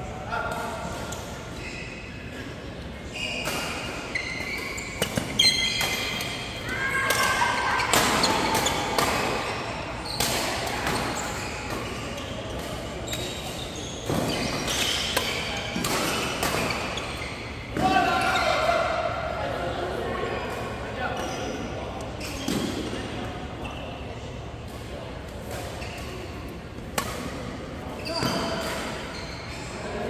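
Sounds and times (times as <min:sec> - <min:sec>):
sneakers squeaking on court: 0:03.0 - 0:06.6, 0:07.7 - 0:18.5, 0:22.1 - 0:24.6, 0:25.5 - 0:30.0
racket hitting shuttlecock: 0:14.1 - 0:17.0.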